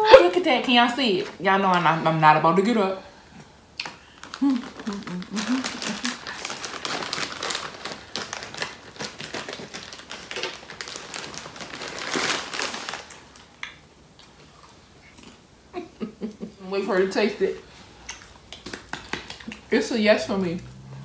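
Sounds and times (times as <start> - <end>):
plastic snack bag crinkling: 3.8 - 13.6.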